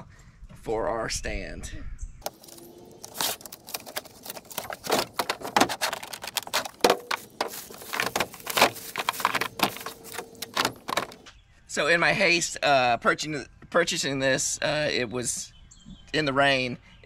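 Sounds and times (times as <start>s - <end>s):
plastic case clicks and clatter: 3.3s - 11.3s.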